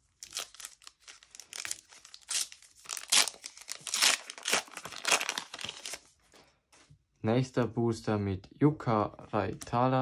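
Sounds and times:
card pack wrapper tearing: 0.2 - 6.1.

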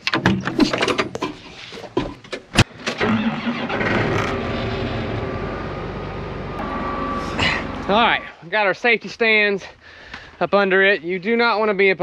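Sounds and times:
tractor diesel engine idling: 3.0 - 8.3.

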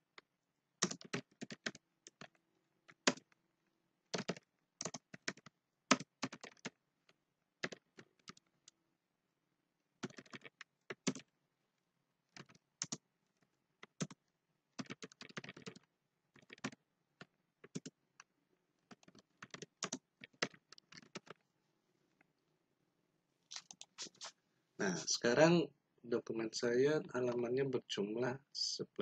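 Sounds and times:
keyboard typing: 0.8 - 3.4, 4.1 - 8.8, 10.0 - 11.3, 12.3 - 13.0, 13.8 - 21.4, 23.5 - 24.3.

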